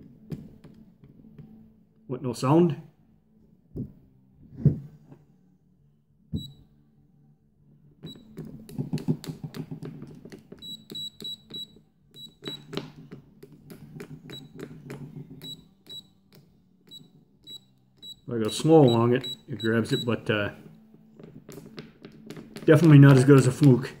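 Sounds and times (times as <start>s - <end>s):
multimeter continuity beeps: 6.4s - 6.6s, 8.0s - 8.4s, 10.6s - 12.7s, 15.4s - 16.2s, 16.9s - 20.3s.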